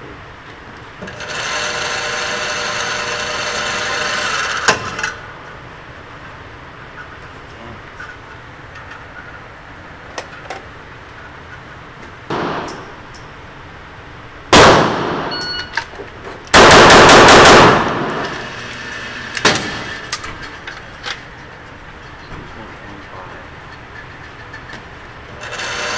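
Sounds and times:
pistol shots echoing indoors: 0:12.3 - 0:13.1, 0:14.5 - 0:15.6, 0:16.5 - 0:18.4.

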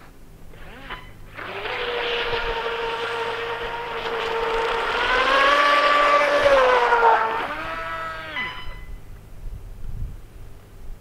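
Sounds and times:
electric motor whine: 0:00.5 - 0:09.0.

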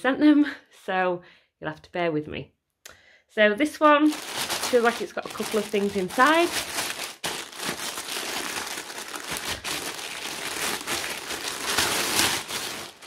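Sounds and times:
plastic bag crinkling: 0:04.0 - 0:13.0
scissors cutting plastic: 0:09.2 - 0:13.0.

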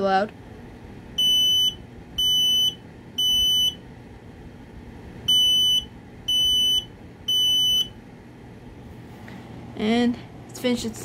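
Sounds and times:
smoke alarm high-pitched beeps: 0:01.2 - 0:03.8, 0:05.3 - 0:08.0.

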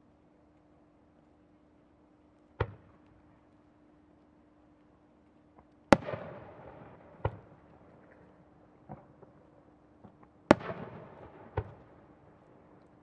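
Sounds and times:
smaller firework bangs: 0:05.9 - 0:08.2, 0:10.0 - 0:12.8
firework booms: 0:06.0 - 0:07.5.

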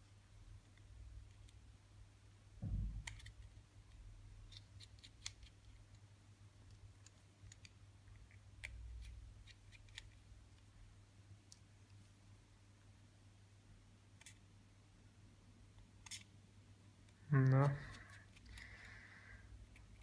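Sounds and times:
soft thump: 0:02.6 - 0:03.0.

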